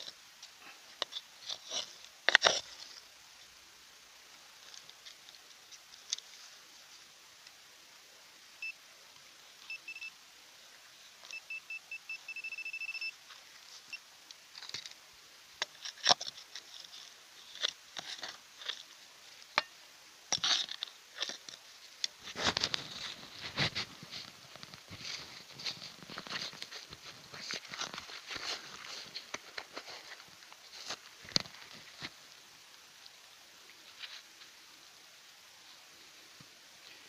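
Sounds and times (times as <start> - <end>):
metal detector beeping: 9.7 - 10.2, 11.2 - 13.2.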